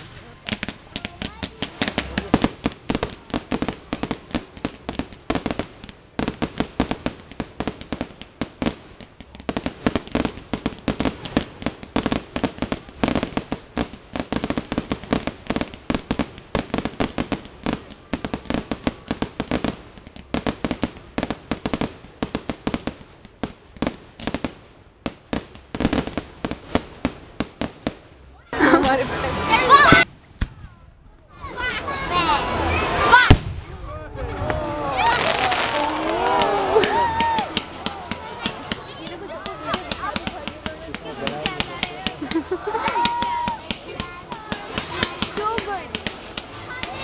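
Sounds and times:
fireworks bangs and cracks: 0.0 - 47.0.

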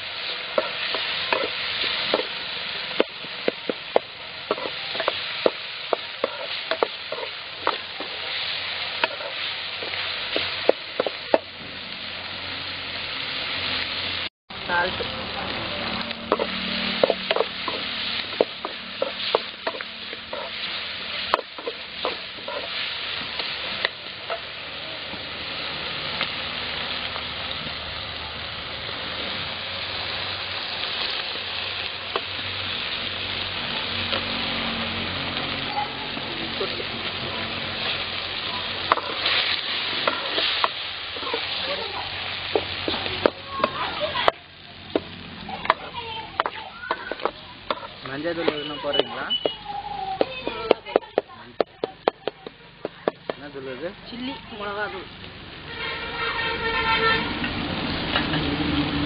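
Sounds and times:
vegetables sizzling in oil: 0.0 - 59.0
ladle scraping and clacking on pan: 0.5 - 2.4, 3.0 - 8.4, 9.0 - 11.4, 16.3 - 24.5, 38.8 - 41.8, 45.0 - 49.6.

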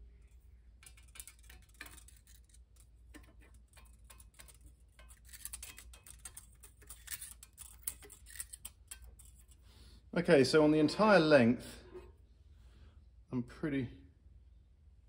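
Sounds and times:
metallic ticks and scrapes: 0.0 - 10.4.

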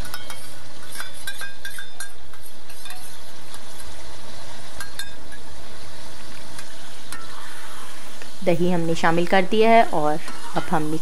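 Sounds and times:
metal spoon clinking on pan: 0.0 - 3.2, 4.8 - 5.5
food sizzling in a pan: 0.0 - 11.0.

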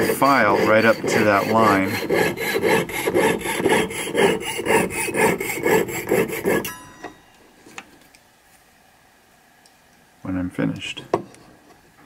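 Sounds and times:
saw rasping through metal: 0.0 - 7.0.

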